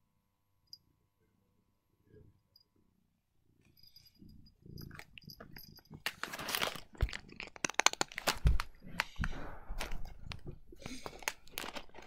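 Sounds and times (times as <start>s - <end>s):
plastic pouch crinkling: 6.0s - 8.8s, 9.8s - 12.0s.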